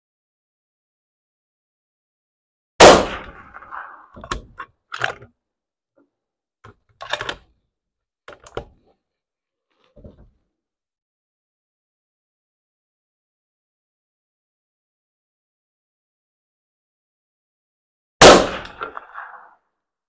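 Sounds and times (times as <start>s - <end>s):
rifle shot: 2.8s - 4.1s, 18.2s - 19.5s
clicks of handling a rifle: 3.3s - 5.4s, 6.0s - 7.6s, 8.3s - 9.0s, 9.7s - 10.4s, 18.6s - 19.5s.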